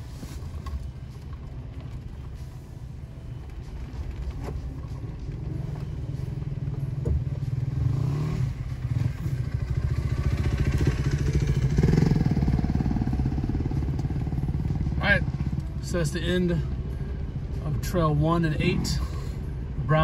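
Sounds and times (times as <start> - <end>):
dirt bike engine passing: 7.7 - 15.6.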